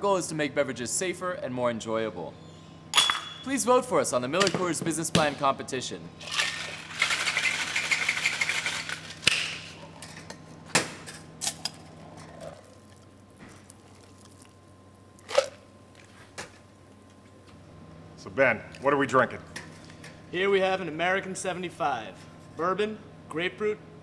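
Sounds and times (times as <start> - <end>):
ice rattling in cocktail shaker: 6.2 - 9.2.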